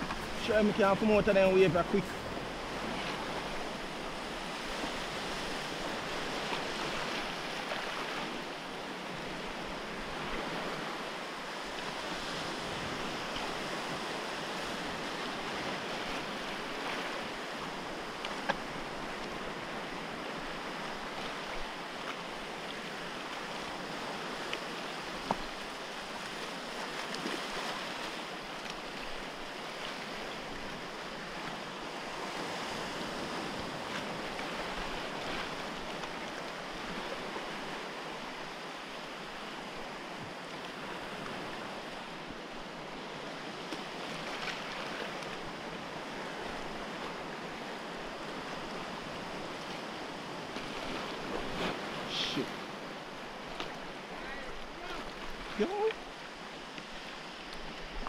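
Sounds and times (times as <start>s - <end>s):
waves breaking on rocks: 0.0s - 58.0s.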